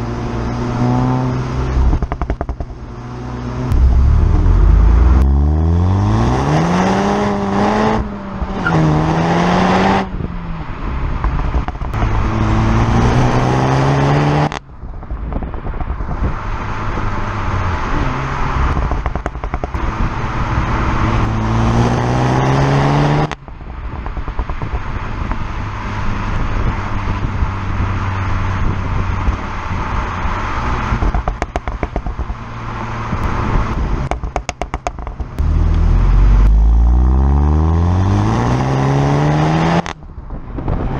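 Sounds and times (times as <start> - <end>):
car engine accelerating: 0.0 - 14.6, 32.2 - 40.9
exhaust crackles and pops: 1.9 - 2.8, 3.7 - 5.4, 18.7 - 19.8, 30.9 - 32.5, 33.1 - 37.0.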